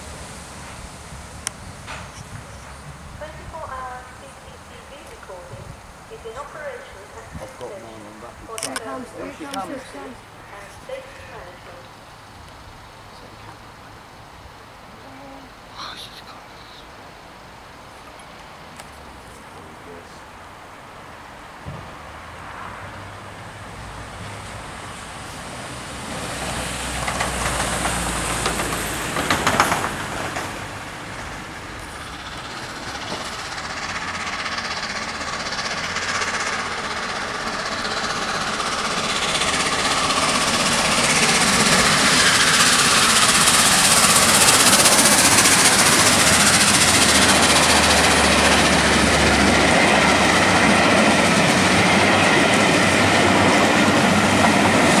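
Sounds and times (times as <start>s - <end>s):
train rushing past: 0.0s - 16.0s, 16.6s - 55.0s
wheels clattering over rails: 25.7s - 55.0s.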